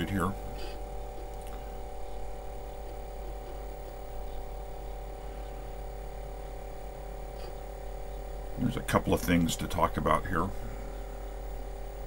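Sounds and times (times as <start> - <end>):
floppy disk drive whirring: 0.0 - 12.0
low hum: 0.0 - 12.0.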